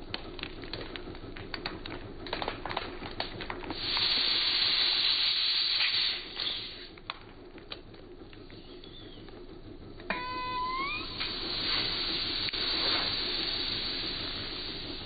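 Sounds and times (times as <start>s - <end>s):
air hissing from ball: 3.8s - 7.0s, 10.8s - 15.0s.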